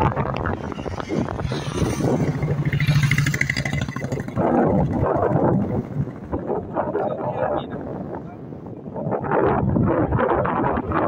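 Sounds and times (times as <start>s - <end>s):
vehicle passing by: 0.5s - 6.2s.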